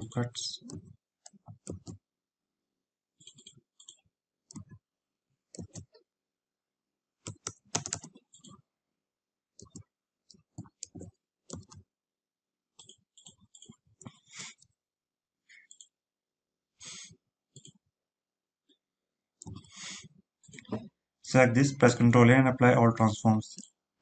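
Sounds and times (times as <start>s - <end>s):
computer mouse clicks: 0.6s - 2.0s, 3.2s - 4.8s, 5.5s - 6.0s, 7.2s - 8.6s, 9.6s - 11.8s, 12.8s - 14.7s, 15.6s - 16.0s, 17.6s - 17.8s, 19.4s - 20.9s
keyboard key presses: 0.6s - 2.0s, 3.2s - 4.8s, 5.6s - 6.0s, 7.2s - 8.6s.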